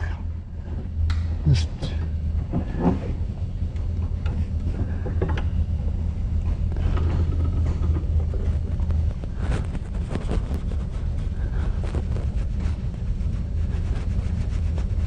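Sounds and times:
steady low hum: 0:00.0 - 0:15.0
faint rubbing and scraping: 0:04.3 - 0:15.0.

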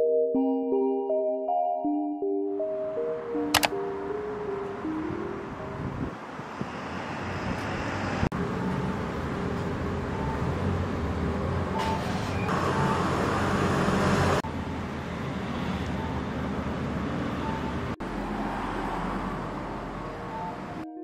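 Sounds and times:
road traffic rumble: 0:02.6 - 0:20.9.

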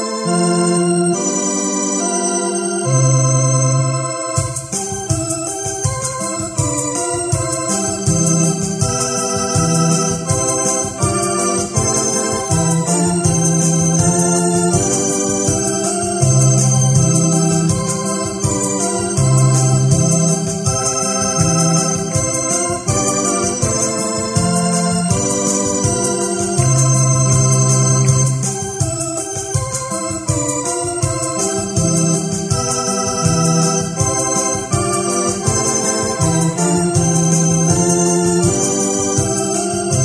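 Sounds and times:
keyboard organ chords and melody: 0:00.0 - 0:40.0
steady electronic beat: 0:02.8 - 0:40.0
moving bass line: 0:08.0 - 0:28.8.

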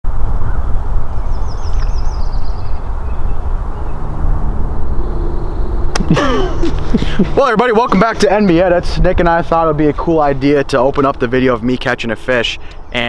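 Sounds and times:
wind buffeting microphone: 0:00.0 - 0:13.0
bird warbling trill: 0:00.4 - 0:08.7.

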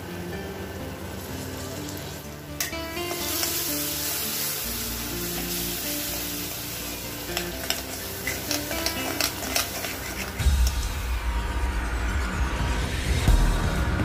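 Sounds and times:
curd sizzling in hot oil: 0:00.0 - 0:11.1
metal spoon scraping pan: 0:07.2 - 0:10.8.

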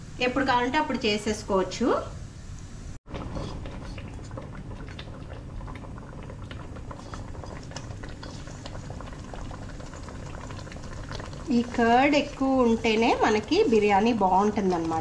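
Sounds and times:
food bubbling and sizzling: 0:03.0 - 0:15.0.

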